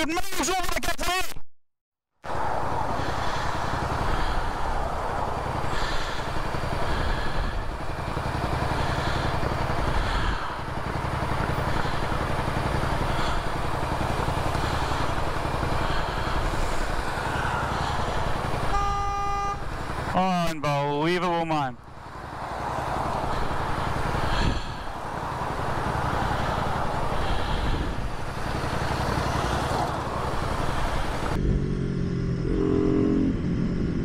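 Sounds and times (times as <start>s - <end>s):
traffic on wet street: 2.2s - 31.4s
motorcycle engine: 2.3s - 34.0s
car horn: 18.6s - 19.7s.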